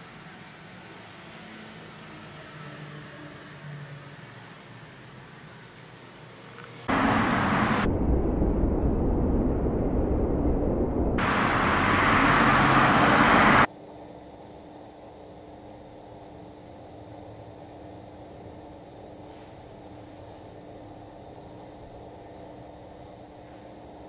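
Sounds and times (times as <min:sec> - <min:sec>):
street traffic noise: 0:00.0 - 0:07.9, 0:11.2 - 0:13.7.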